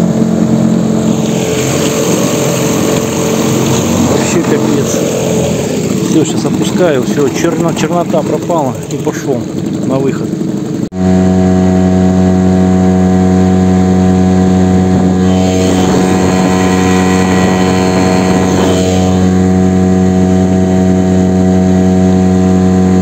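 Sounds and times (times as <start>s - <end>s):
churning water rushing: 0.0s - 10.1s
outboard motor running: 0.0s - 23.0s.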